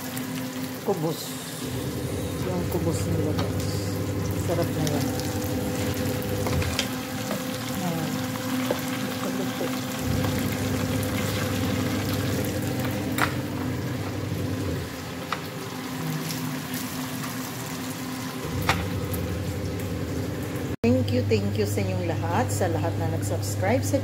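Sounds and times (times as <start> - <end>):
food deep-frying in oil: 0.0 - 20.8
low hum: 1.6 - 6.9, 10.0 - 15.1, 18.4 - 24.0.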